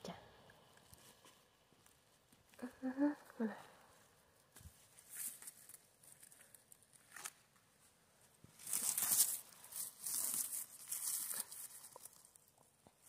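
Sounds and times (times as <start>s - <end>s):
hands rustling through dry grass: 4.4s - 7.4s, 8.5s - 12.5s.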